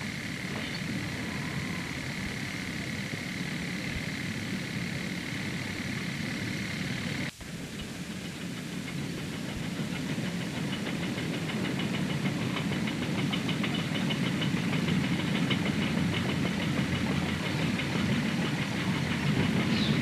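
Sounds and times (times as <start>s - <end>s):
low engine drone: 0.0s - 9.8s
rapid metallic clicking: 8.3s - 20.0s.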